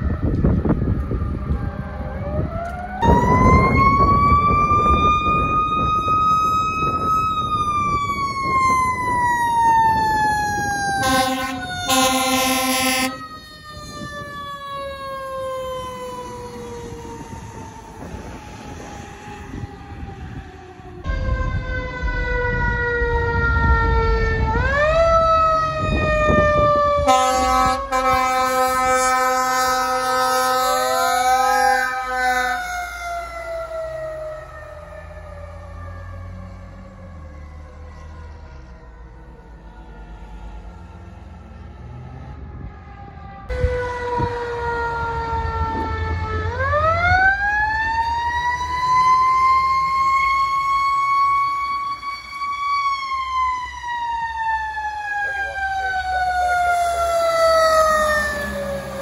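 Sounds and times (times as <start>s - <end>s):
truck engine rumble: 0.0s - 59.0s
air horn blasts: 11.0s - 13.4s, 27.0s - 32.6s.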